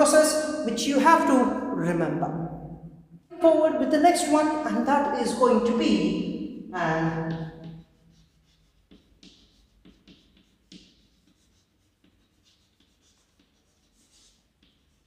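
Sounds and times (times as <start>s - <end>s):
chalk scratching on chalkboard: 7.1s - 15.0s.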